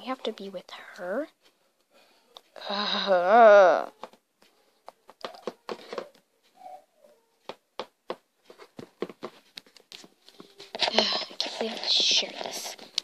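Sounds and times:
plastic figures tapping on table: 0:04.8 - 0:06.2, 0:07.4 - 0:09.7.

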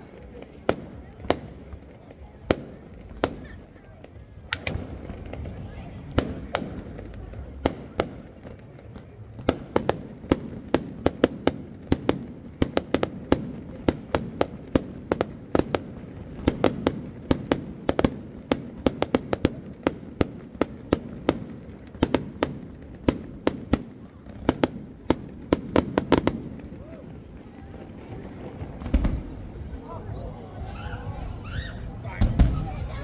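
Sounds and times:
fireworks bangs and cracks: 0:00.0 - 0:33.0.

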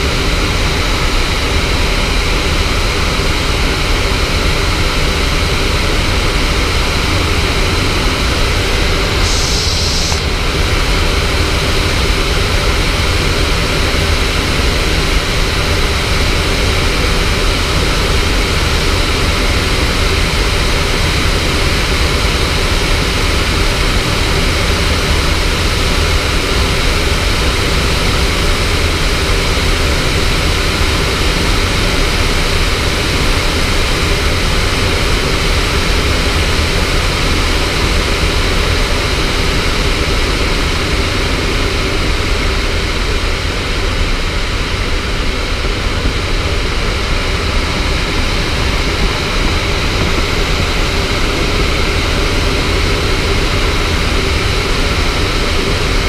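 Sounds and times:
airflow rushing over canopy: 0:04.1 - 0:56.0
high hiss: 0:08.4 - 0:12.1.

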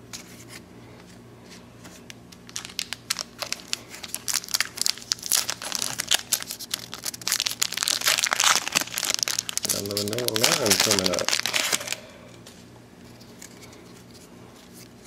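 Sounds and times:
wrapper crinkling and tearing: 0:02.4 - 0:12.1.

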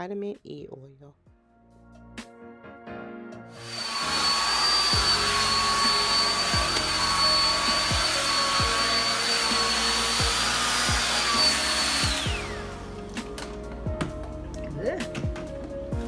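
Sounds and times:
hair dryer blowing: 0:03.5 - 0:13.6.

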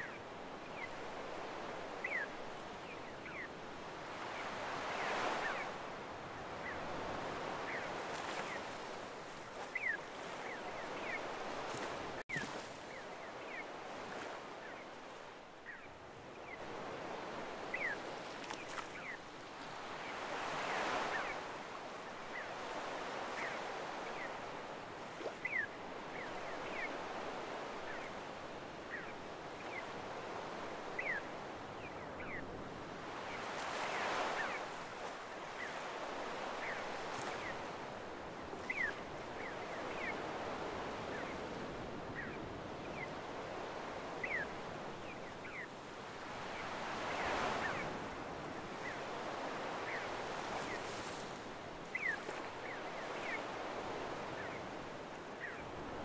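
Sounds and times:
waves washing up a beach: 0:00.0 - 0:56.0.

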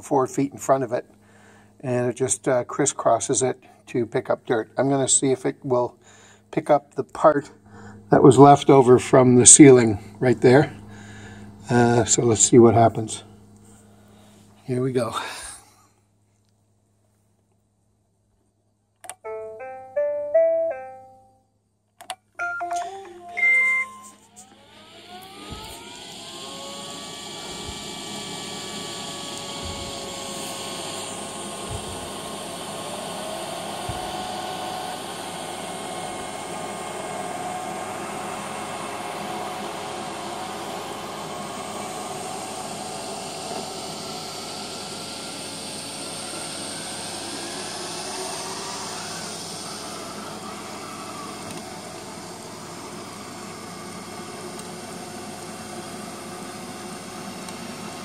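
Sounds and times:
robot vacuum whirring: 0:23.6 - 0:58.0.

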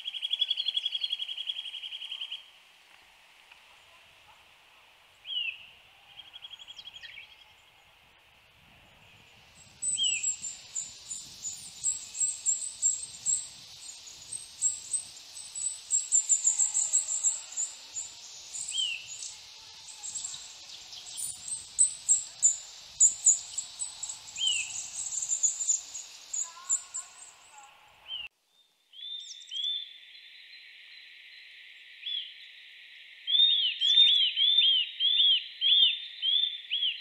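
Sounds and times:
bird whistled trill: 0:09.8 - 0:27.3.

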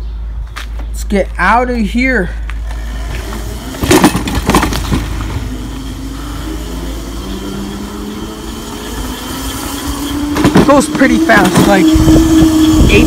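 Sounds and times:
electric bike motor whining: 0:02.6 - 0:13.0
wind rumble on microphone: 0:07.8 - 0:13.0.

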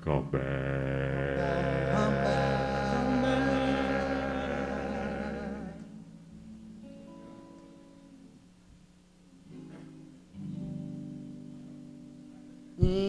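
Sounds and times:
sustained chords: 0:00.0 - 0:06.7
voices singing harmony: 0:00.3 - 0:06.1
soft guitar notes: 0:01.2 - 0:08.4, 0:09.4 - 0:13.0.

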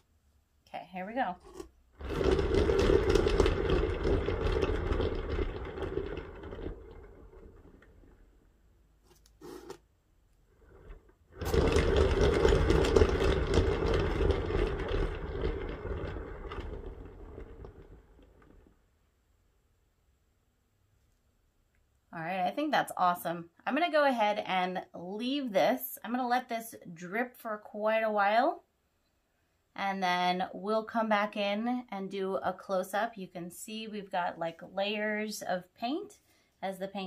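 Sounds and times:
turntable spinning on bearing: 0:01.4 - 0:08.5, 0:10.5 - 0:18.9.

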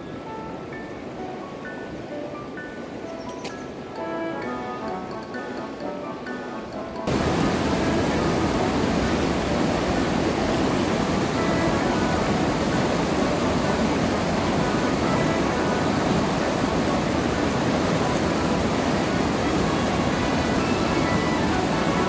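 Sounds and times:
background music: 0:00.0 - 0:22.0
whitewater rapids rushing: 0:07.1 - 0:22.0.

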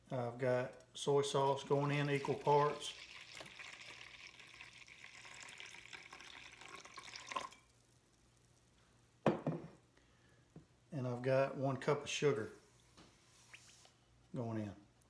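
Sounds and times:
sauce trickling into bowl: 0:01.4 - 0:08.2.

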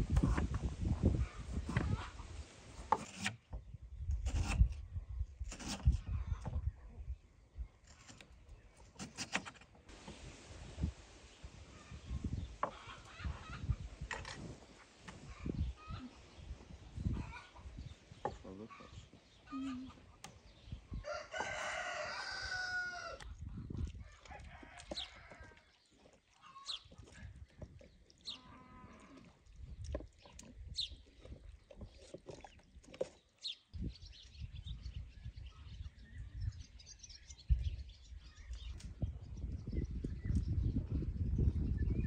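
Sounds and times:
rooster crowing: 0:21.0 - 0:23.2.

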